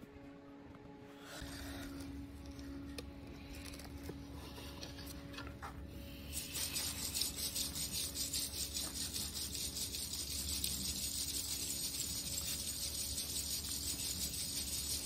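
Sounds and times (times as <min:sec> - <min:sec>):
sand rasping through sieve: 0:06.2 - 0:15.0.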